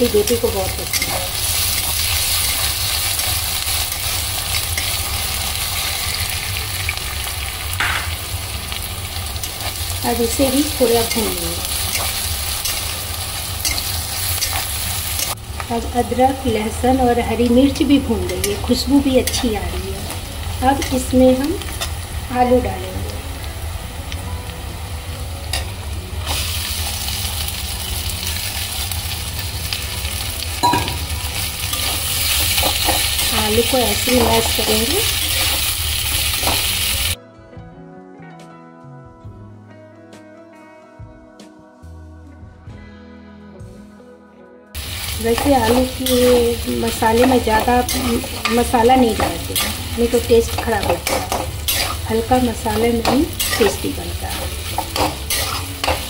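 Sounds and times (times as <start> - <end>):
vegetables sizzling in hot oil: 0.0 - 37.2, 44.8 - 56.0
metal clink against pan: 30.6 - 31.2
spatula scraping metal pan: 54.4 - 56.0.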